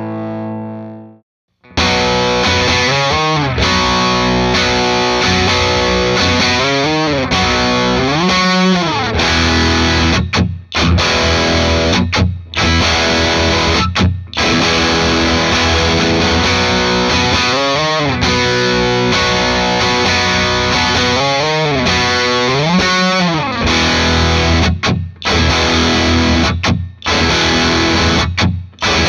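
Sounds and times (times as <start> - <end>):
overdriven electric guitar: 0.0 - 29.0.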